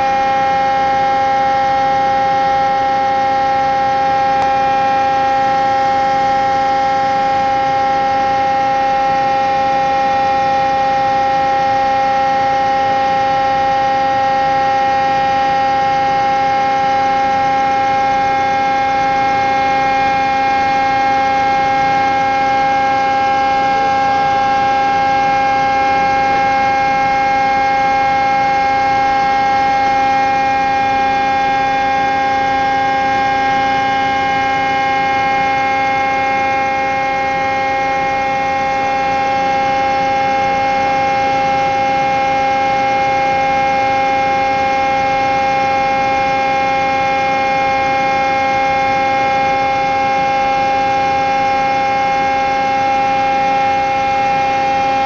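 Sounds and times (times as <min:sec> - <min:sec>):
loud machine hum: 0:00.0 - 0:55.0.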